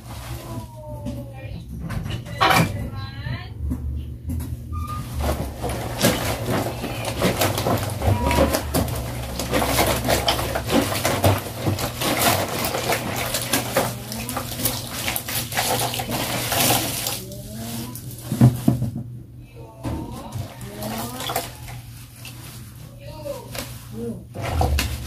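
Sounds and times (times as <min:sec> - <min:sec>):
water sloshing in basin: 0:20.3 - 0:22.6.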